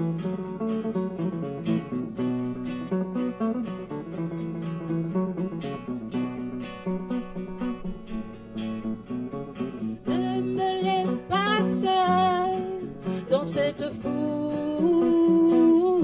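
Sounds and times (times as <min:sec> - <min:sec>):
acoustic guitar strumming: 0:00.0 - 0:16.0
electric guitar: 0:00.0 - 0:16.0
woman singing: 0:10.0 - 0:16.0.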